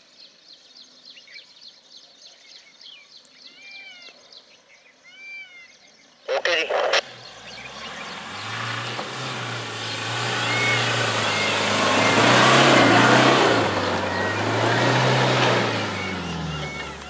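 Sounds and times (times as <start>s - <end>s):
tyres on dirt: 6.4s - 17.0s
suv engine pulling under load: 7.0s - 17.0s.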